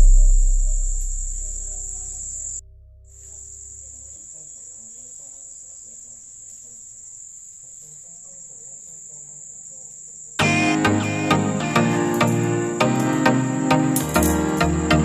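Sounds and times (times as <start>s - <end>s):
crickets trilling: 0.1s - 2.6s, 3.2s - 10.5s.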